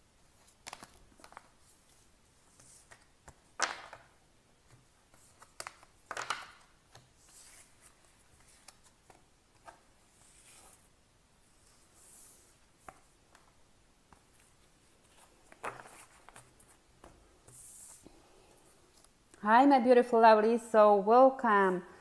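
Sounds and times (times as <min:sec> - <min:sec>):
cards sliding across table: 0:15.0 - 0:18.3.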